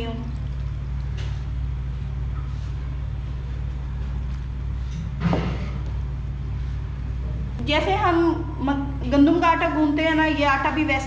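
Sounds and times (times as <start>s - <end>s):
hand squishing damp flour: 0.0s - 7.6s
steady low hum: 0.0s - 11.0s.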